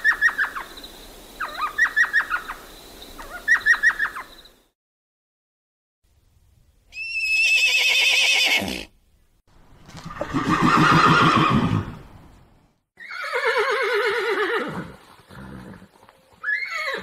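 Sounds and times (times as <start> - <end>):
horse whinnying: 6.9 - 8.9, 10.0 - 12.0, 13.0 - 17.0.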